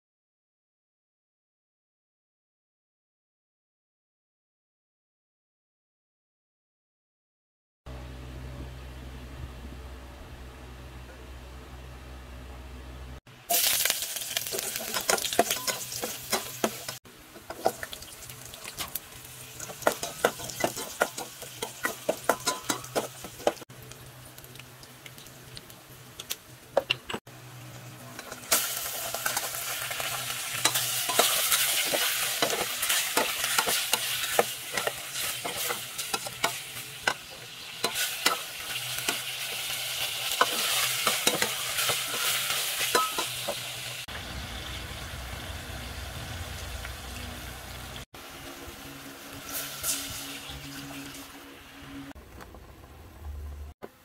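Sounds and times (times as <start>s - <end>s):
chicken sizzling: 13.2s - 54.0s
garlic sizzling in hot oil: 13.4s - 52.1s.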